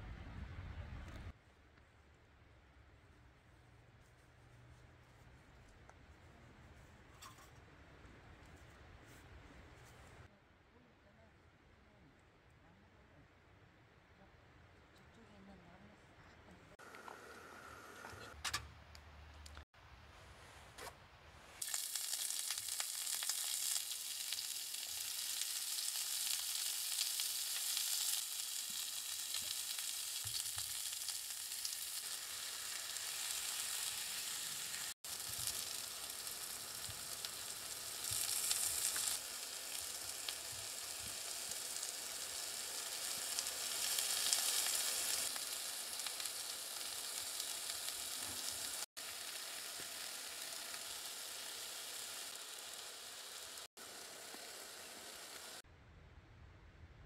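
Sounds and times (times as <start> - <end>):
meat and vegetables sizzling: 21.6 - 55.6.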